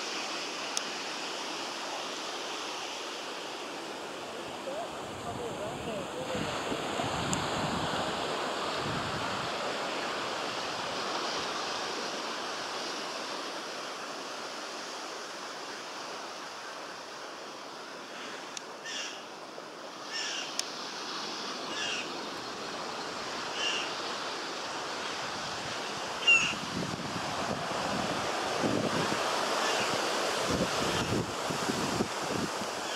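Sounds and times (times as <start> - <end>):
wind buffeting microphone: 4.8 - 9.6, 25.2 - 32.8.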